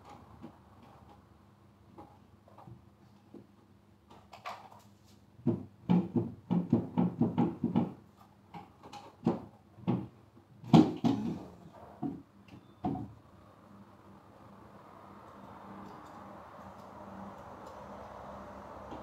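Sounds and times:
wooden board panels knocking: 0:05.4 - 0:08.1, 0:09.2 - 0:12.2.

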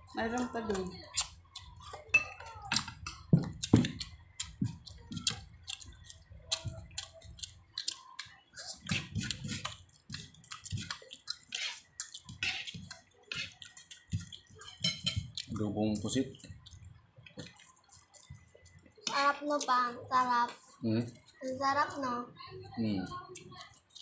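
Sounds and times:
chewing and lip smacks: 0:00.4 - 0:02.1, 0:02.7 - 0:19.7, 0:23.2 - 0:24.0
fingers working rice on plate: 0:02.7 - 0:16.8.

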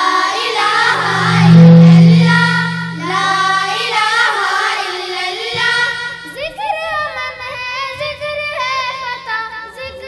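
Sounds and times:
loud low hum: 0:00.6 - 0:04.4.

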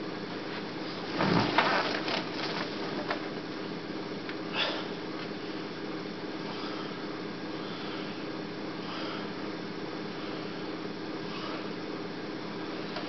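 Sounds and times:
tape hiss and hum: 0:00.0 - 0:13.0
rustling with clicks: 0:01.0 - 0:03.3.

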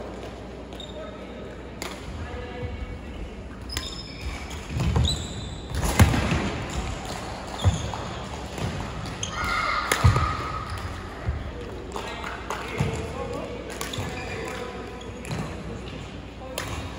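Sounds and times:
shoe squeaks: 0:00.8 - 0:01.2, 0:03.6 - 0:05.8, 0:07.6 - 0:08.2.

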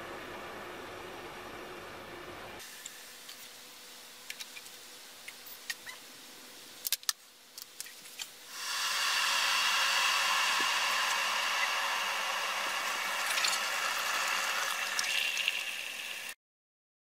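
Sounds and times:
water hissing as it heats: 0:08.5 - 0:16.4.

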